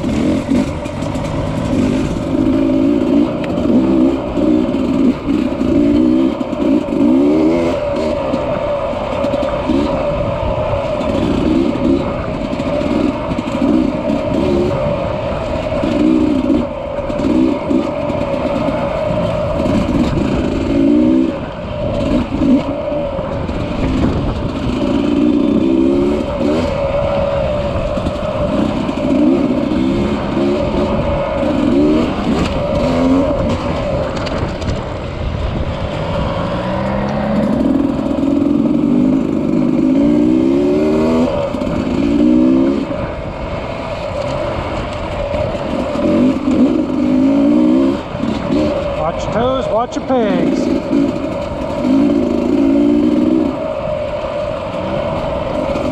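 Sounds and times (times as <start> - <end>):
dirt bike engine revving: 0.0 - 55.9.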